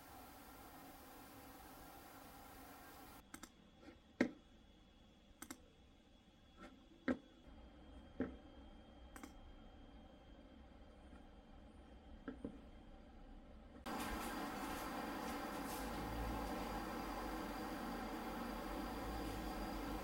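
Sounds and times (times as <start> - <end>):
faint hum: 0.0 - 3.9, 4.6 - 20.0
computer mouse clicks: 3.3 - 3.6, 5.4 - 5.6, 9.1 - 9.4.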